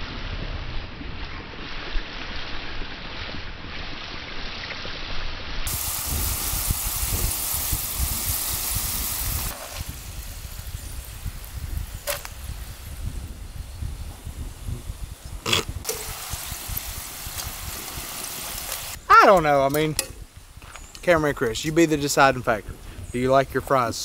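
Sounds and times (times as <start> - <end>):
wind rumble on microphone: 0.0 - 19.0, 22.3 - 24.0
fries sizzling in hot oil: 5.6 - 13.1, 15.4 - 19.0.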